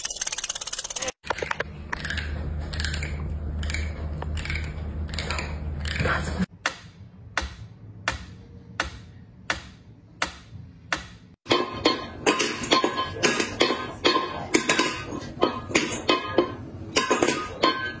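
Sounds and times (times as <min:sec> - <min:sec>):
music with clicks and knocks: 0:01.2 - 0:18.0.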